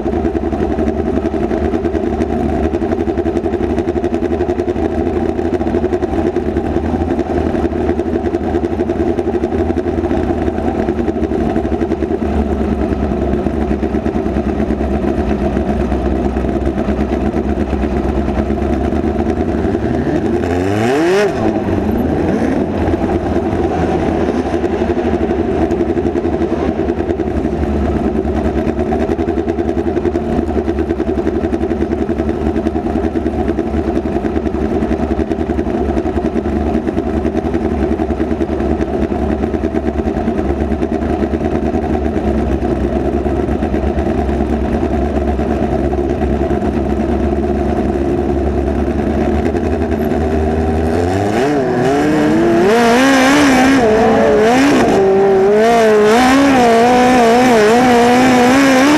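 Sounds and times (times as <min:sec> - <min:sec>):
race car engine at high revs: 0:00.0 - 0:58.9
low rumble: 0:04.7 - 0:31.4.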